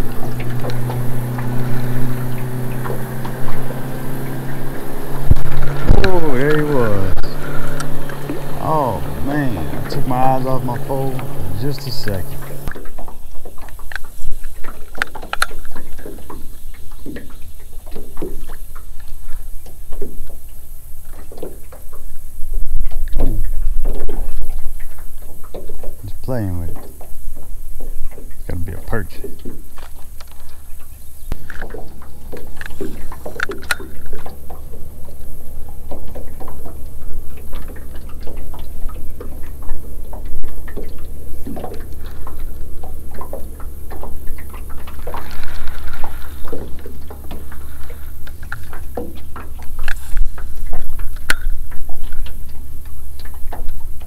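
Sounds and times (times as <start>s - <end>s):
low rumble: 0.0s - 12.8s
water lapping against boat hull: 0.0s - 54.0s
wind rumble on microphone: 0.0s - 54.0s.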